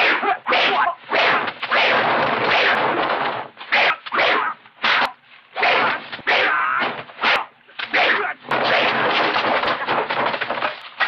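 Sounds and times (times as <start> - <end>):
sharp slap-like hits: 0.0 - 10.5.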